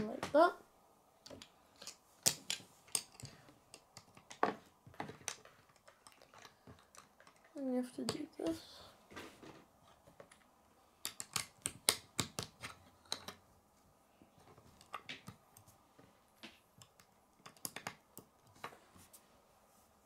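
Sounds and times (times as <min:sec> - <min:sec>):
plastic bricks clicking on wood: 0:01.2 - 0:08.4, 0:11.0 - 0:13.4, 0:16.7 - 0:18.6.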